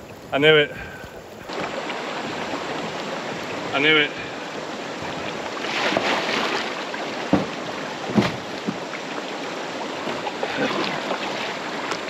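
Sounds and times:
paddle strokes in water: 0.0 - 12.0
water rushing over rocks: 0.0 - 12.0
dull thumps: 7.2 - 8.9.

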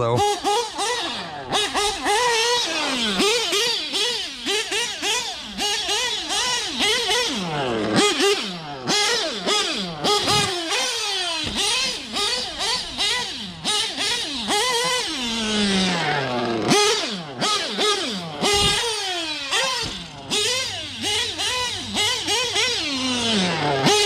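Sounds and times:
nitro engine revving: 0.0 - 24.0.

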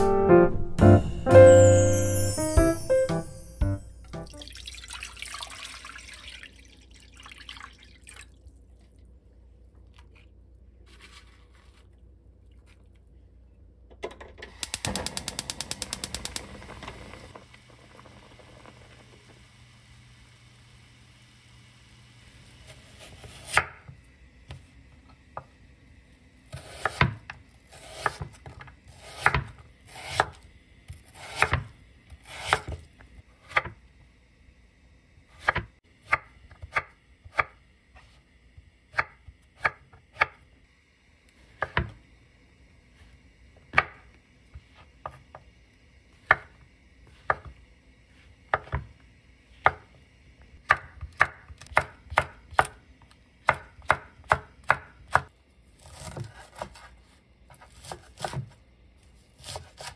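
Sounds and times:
knife chopping on wooden board: 26.5 - 30.4, 31.1 - 31.7, 47.2 - 47.5.

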